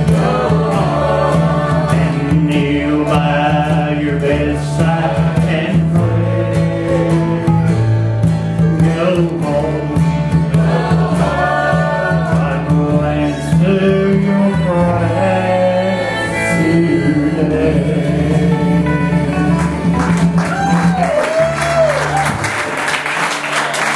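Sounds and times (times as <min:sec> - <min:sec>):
man singing gospel song: 0:00.0 - 0:07.8, 0:08.7 - 0:19.9
acoustic string band: 0:00.0 - 0:23.9
upright bass: 0:00.0 - 0:23.9.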